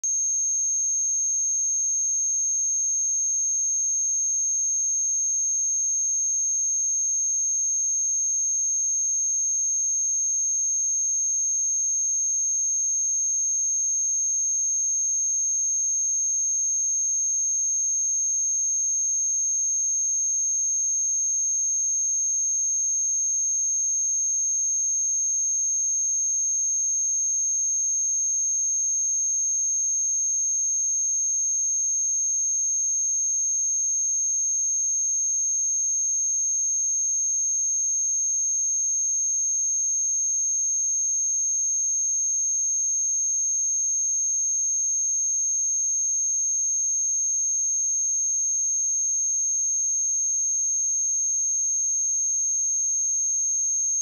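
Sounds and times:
high-pitched sine-wave tone: 0:00.0 - 0:02.4.

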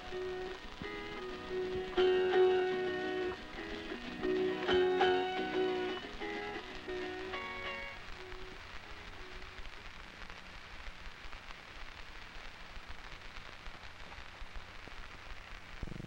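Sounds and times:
faint guitar note: 0:00.0 - 0:09.6
film soundtrack hiss and crackle: 0:00.0 - 0:16.0.

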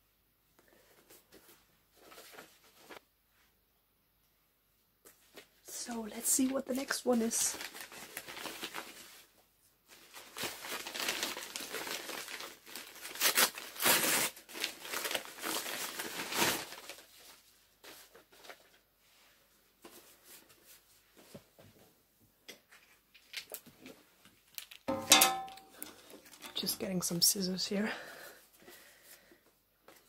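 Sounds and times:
paper packaging crinkling: 0:06.2 - 0:18.8, 0:23.1 - 0:27.7.

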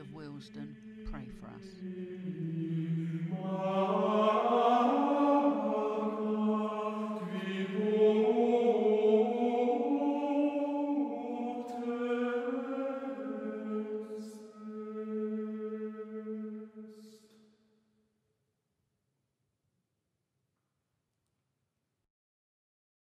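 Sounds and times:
slow sung chant: 0:00.0 - 0:17.6.

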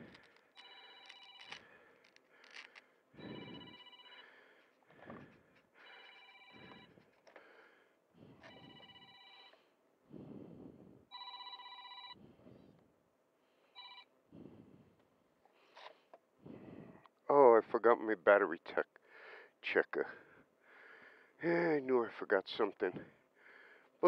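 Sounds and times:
electronic trilling ring: 0:03.2 - 0:04.3, 0:08.5 - 0:09.5.

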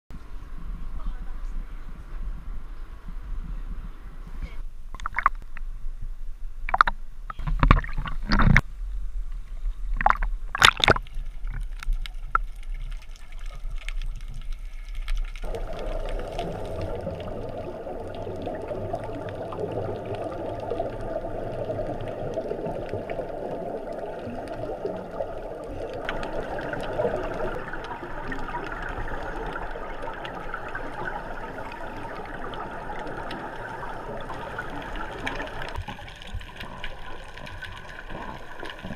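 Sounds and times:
water splashing against camera housing: 0:04.9 - 0:05.6, 0:06.7 - 0:08.7, 0:09.9 - 0:12.8
muffled underwater rushing: 0:06.7 - 0:38.9.

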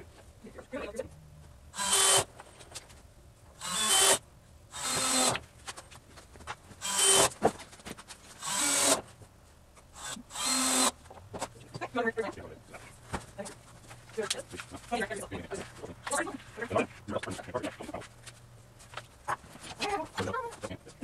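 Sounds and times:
cordless drill driving screws: 0:01.8 - 0:02.3, 0:03.6 - 0:05.4, 0:06.8 - 0:07.4, 0:08.4 - 0:09.0, 0:10.0 - 0:11.0.

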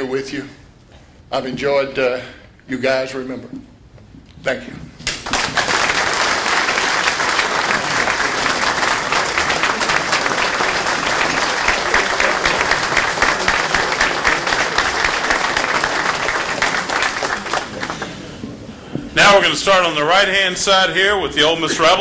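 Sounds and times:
audience applauding: 0:05.1 - 0:18.4.

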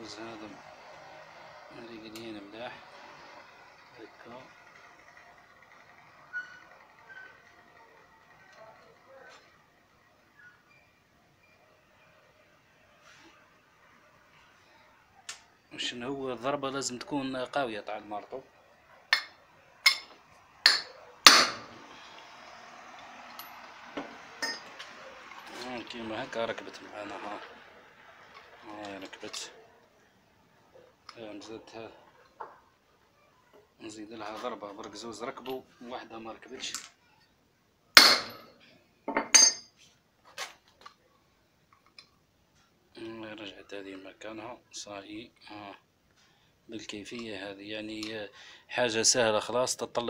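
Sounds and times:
hammer striking metal: 0:19.1 - 0:21.8, 0:24.4 - 0:24.8, 0:38.0 - 0:38.5.

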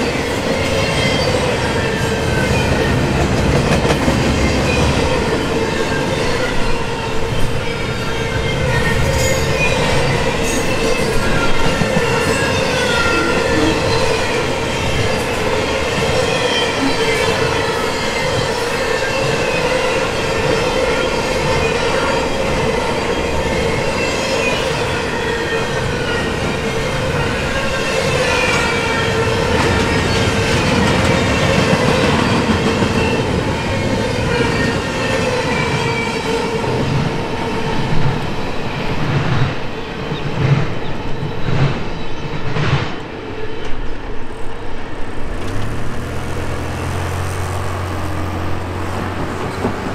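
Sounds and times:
train wheels rumbling on rail: 0:00.0 - 0:49.9
high-pitched wheel squeals: 0:04.7 - 0:32.4.

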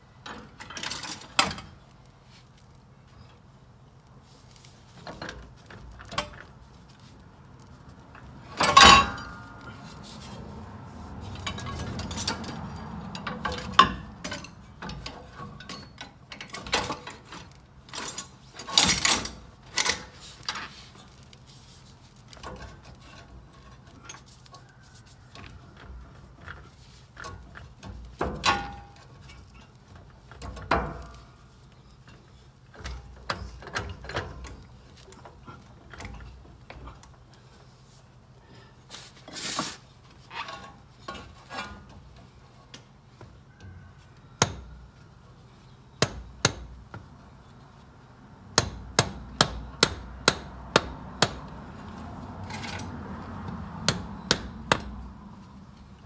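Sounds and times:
metal tools clinking and clanking: 0:00.3 - 0:01.8, 0:08.2 - 0:09.9, 0:11.2 - 0:21.2, 0:52.4 - 0:53.0.

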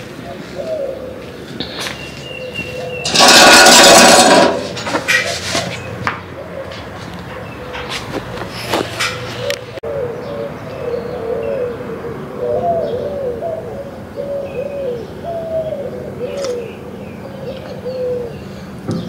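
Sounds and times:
doves cooing: 0:00.0 - 0:19.0.

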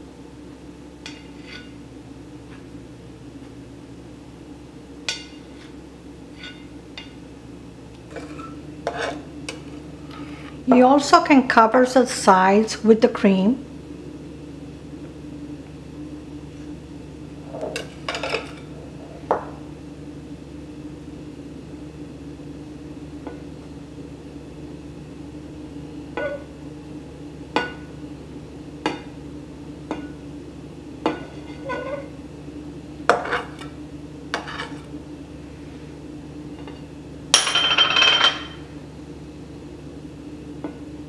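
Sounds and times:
steady low hum: 0:00.0 - 0:41.0
metal knife scraping ceramic plate: 0:08.1 - 0:09.2, 0:31.3 - 0:32.1.

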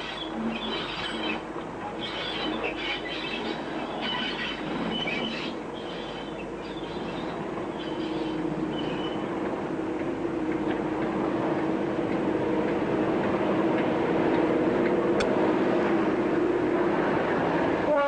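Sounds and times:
diesel locomotive engine drone: 0:00.0 - 0:18.0.

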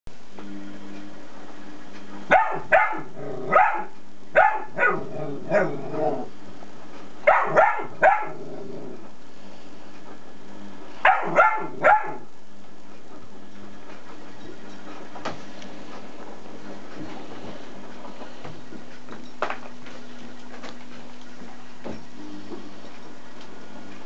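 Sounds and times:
steady low hum: 0:00.1 - 0:24.0
dog barking: 0:02.3 - 0:05.8, 0:07.3 - 0:08.4, 0:11.0 - 0:12.3.

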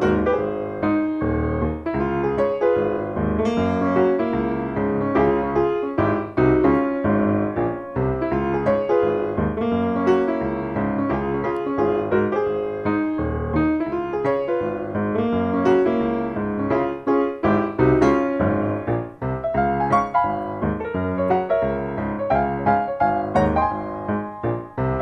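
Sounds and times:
light piano music: 0:00.0 - 0:25.0.

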